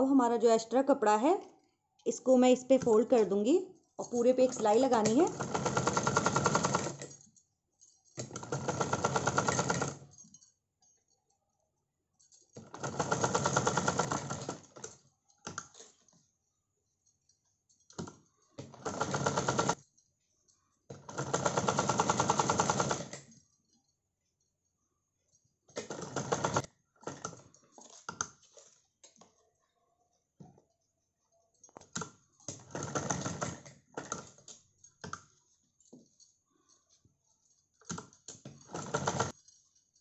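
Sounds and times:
sewing machine stitching: 4.0s - 7.1s, 8.2s - 10.1s, 12.6s - 15.0s, 18.0s - 19.8s, 20.9s - 23.3s, 25.8s - 27.5s, 31.9s - 34.4s, 37.9s - 39.4s.

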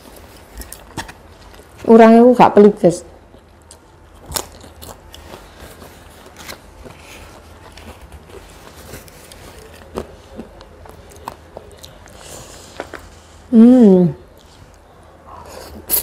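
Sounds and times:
chewing noodles: 3.3s - 13.0s
tissue rustling: 5.2s - 10.4s.

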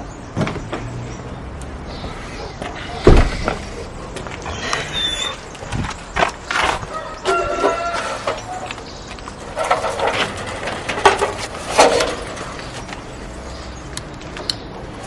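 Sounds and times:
mailbox rattling scrapes: 9.4s - 13.2s.

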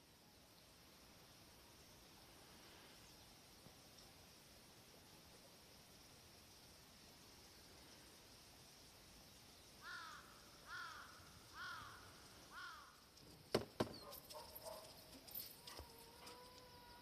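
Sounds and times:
crow cawing: 9.8s - 13.0s.

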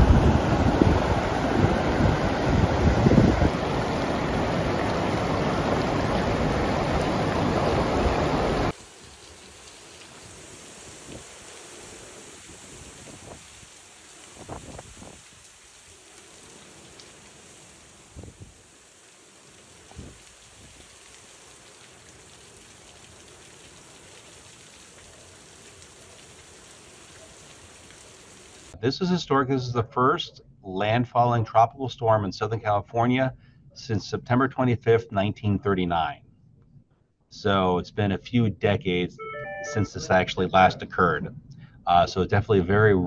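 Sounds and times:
wind noise on microphone: 0.0s - 3.8s, 12.4s - 13.7s, 14.3s - 15.3s, 18.1s - 18.6s, 19.9s - 20.8s
heavy rain hiss: 0.0s - 29.1s
rushing floodwater: 0.0s - 29.5s.

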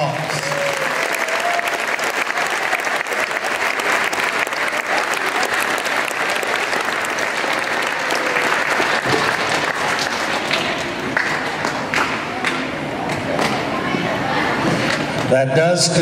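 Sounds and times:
audience applause: 0.0s - 12.6s.

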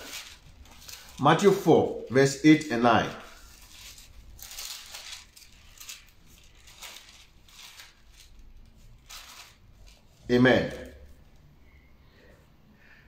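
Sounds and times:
thin pages rustling: 0.0s - 1.6s, 3.4s - 11.2s.

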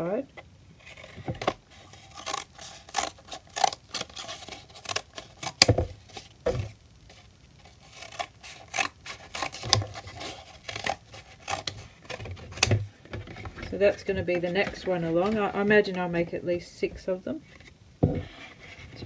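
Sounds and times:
scissors snipping carton: 2.0s - 5.7s, 7.9s - 12.7s.

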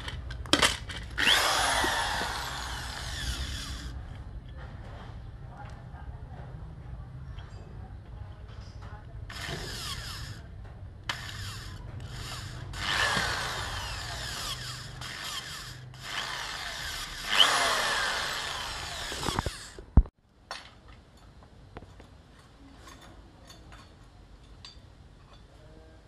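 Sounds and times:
electric drill boring into metal: 1.2s - 3.9s, 9.3s - 10.4s, 11.1s - 19.8s.

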